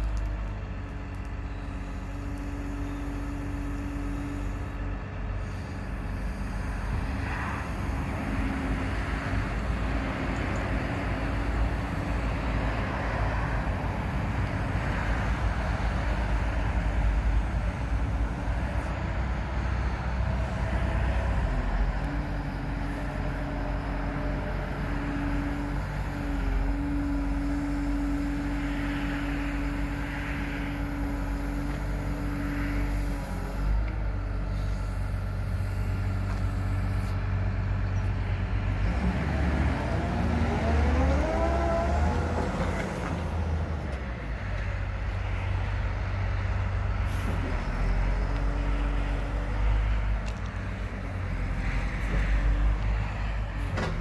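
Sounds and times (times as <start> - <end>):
excavator diesel engine running: 0.0 - 54.0
hydraulics working: 0.0 - 54.0.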